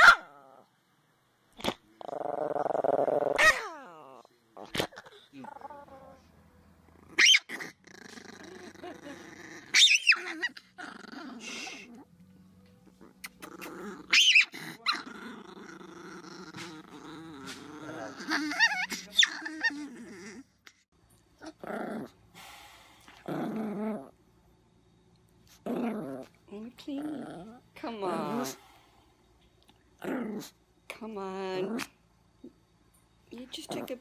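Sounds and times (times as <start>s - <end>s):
small dog growling and snarling: 1.6s - 12.1s, 12.8s - 22.5s, 23.1s - 24.2s, 25.5s - 28.8s, 30.0s - 30.6s, 31.5s - 32.0s, 33.7s - 34.0s
another small dog growling: 6.9s - 12.1s, 12.8s - 20.6s.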